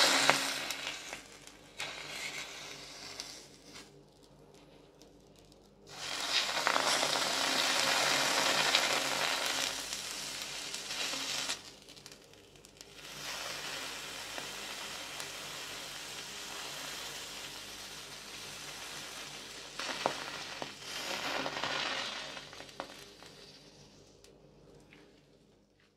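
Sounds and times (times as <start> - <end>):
hot knife sizzling: 0.0 - 4.0, 5.9 - 12.2, 12.8 - 24.0.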